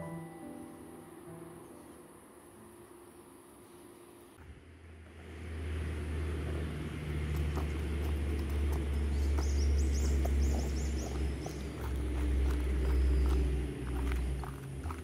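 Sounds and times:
wind buffeting microphone: 6.2 - 15.0.

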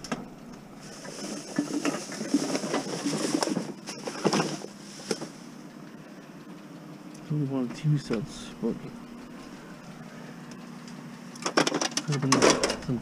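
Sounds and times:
plastic bags rustling: 0.7 - 5.6
items knocking and clattering: 1.0 - 5.4, 11.4 - 13.0.

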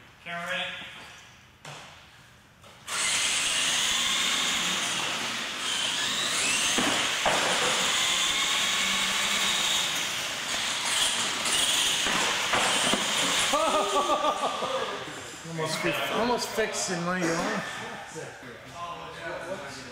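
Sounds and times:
toy truck motors whining: 2.9 - 13.6.

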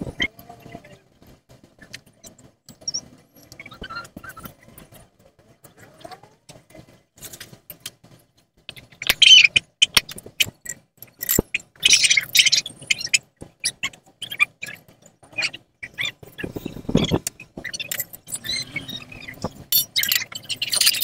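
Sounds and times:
metal parts clinking: 10.4 - 12.0, 17.6 - 21.0.

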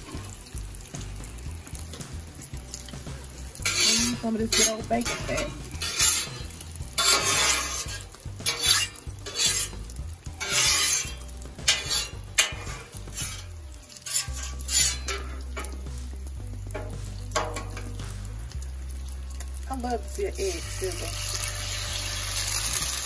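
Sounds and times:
bacon fat sizzling: 0.0 - 23.0
metal spatula scraping griddle: 3.3 - 15.9, 16.7 - 17.9.

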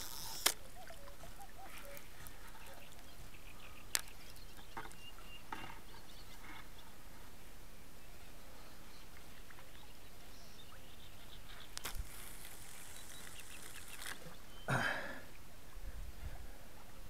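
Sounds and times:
fishing line hissing off reel: 0.0 - 0.7, 11.8 - 14.3.

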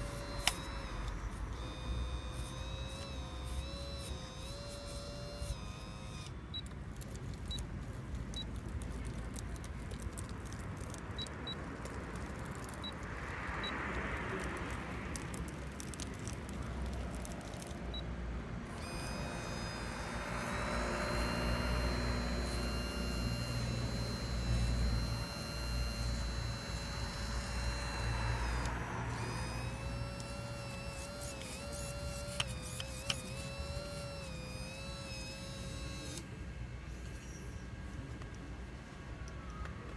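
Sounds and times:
hydraulic pump whine: 0.0 - 7.6, 18.6 - 39.9
low motor hum: 0.0 - 13.1, 14.3 - 39.9.

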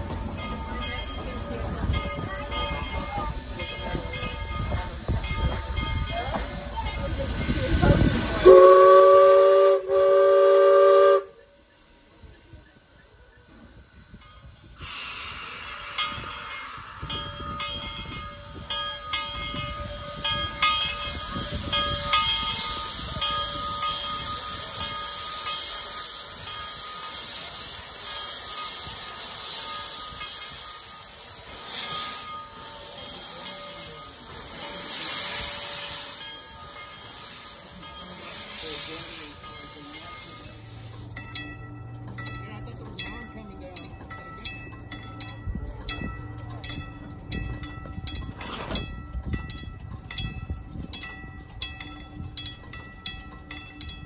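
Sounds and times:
steam locomotive chime whistle: 0.0 - 42.4
steam locomotive hissing: 0.0 - 54.0.

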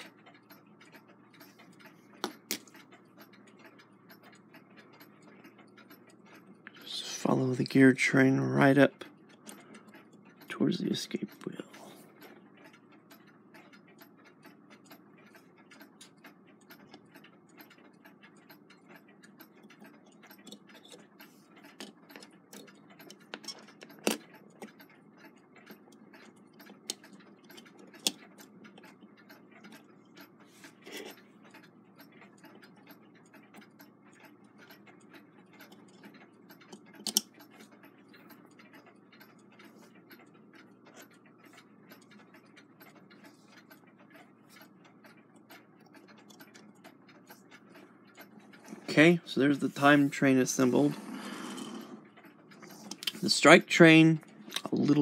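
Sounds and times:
clicks of clock wheels being handled: 0.0 - 55.0
clock ticking: 0.0 - 55.0.

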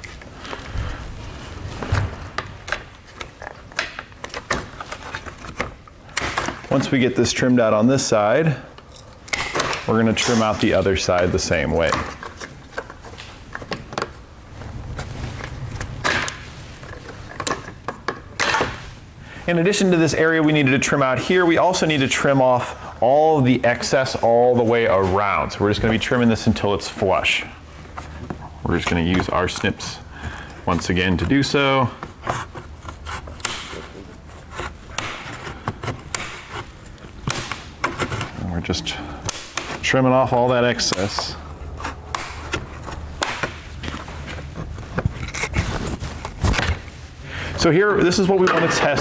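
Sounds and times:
plastic scraping rustle: 0.0 - 6.8, 40.7 - 47.2
snips snapping plastic: 33.3 - 33.9, 34.9 - 38.3.

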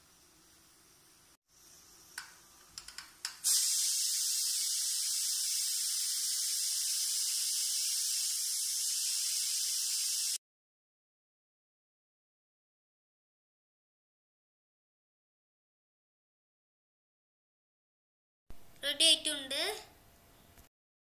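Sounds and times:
steam jet hissing: 3.4 - 10.4.

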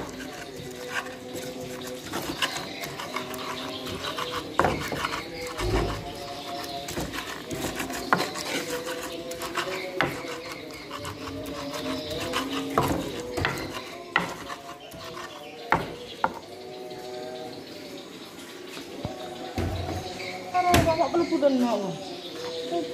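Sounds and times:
stone pestle grinding in mortar: 0.0 - 16.5.

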